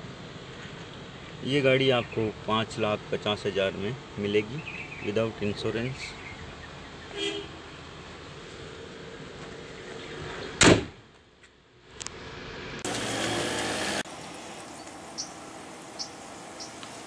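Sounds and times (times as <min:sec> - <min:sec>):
car bonnet slammed shut: 0:10.6 - 0:11.0.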